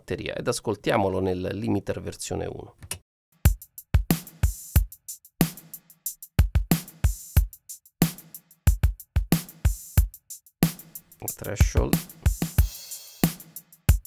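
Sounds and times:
kick drum thumps: 0:11.6 - 0:12.7.

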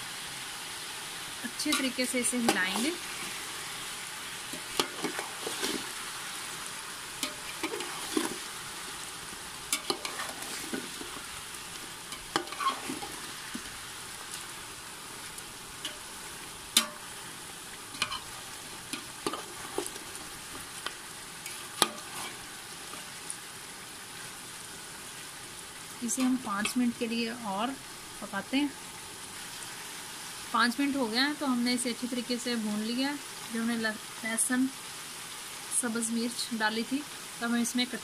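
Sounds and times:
chicken sizzling in oil: 0:00.0 - 0:38.0
metal spoon scraping pot: 0:07.2 - 0:08.4, 0:09.8 - 0:11.2, 0:12.1 - 0:13.3, 0:17.9 - 0:18.4, 0:21.5 - 0:22.4.

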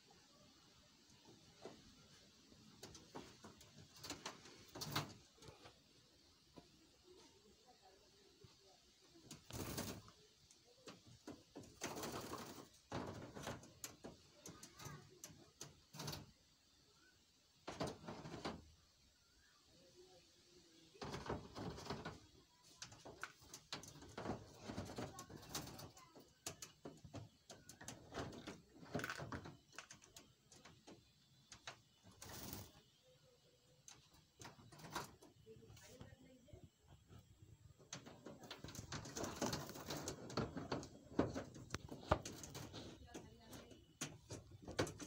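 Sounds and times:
bird wing flapping: 0:09.4 - 0:10.1, 0:32.1 - 0:32.8.

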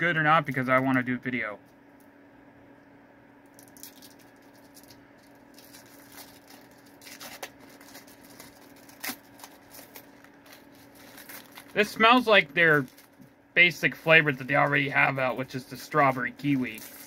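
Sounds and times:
low steady hum: 0:00.0 - 0:17.0
plastic wrapper crinkling and peeling: 0:03.5 - 0:17.0.

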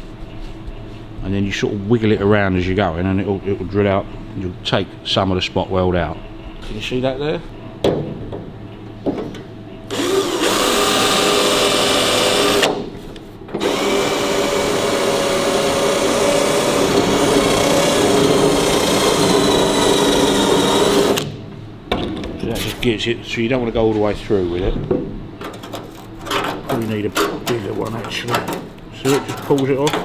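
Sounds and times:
power drill cutting sheet steel: 0:09.9 - 0:12.7, 0:13.6 - 0:21.2.

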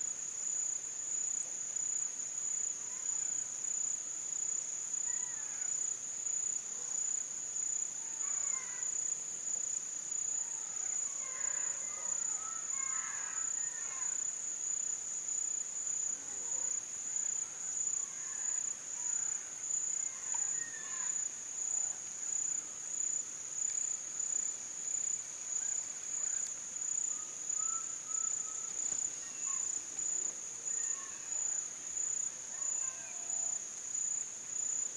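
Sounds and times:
insects chirring: 0:00.4 - 0:34.9
faint bird chirps: 0:25.6 - 0:31.6.

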